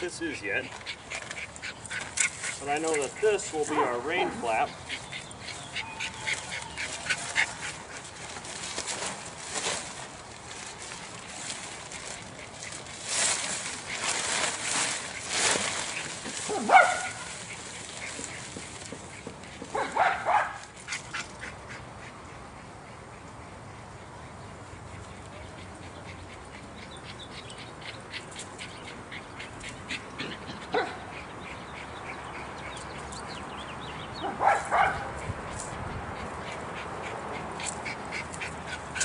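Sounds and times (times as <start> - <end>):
small dog yipping: 5.6 - 7.6
nylon tent fly rustling: 6.6 - 18.8.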